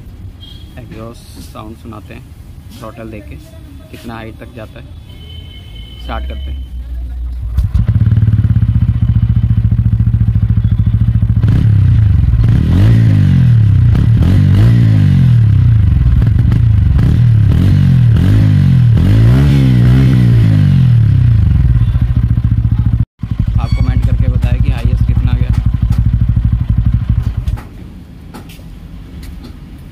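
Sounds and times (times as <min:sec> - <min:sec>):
motorcycle engine revving: 0:07.4 - 0:27.8.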